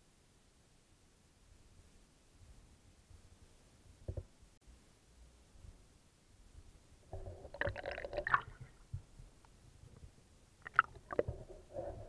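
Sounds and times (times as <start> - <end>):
water splashing and gurgling: 7.4 - 8.8.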